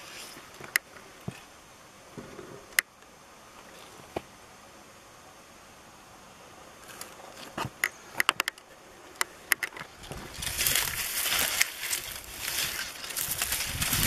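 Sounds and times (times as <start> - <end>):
dry grass and leaves rustling: 0.0 - 4.2, 6.7 - 14.0.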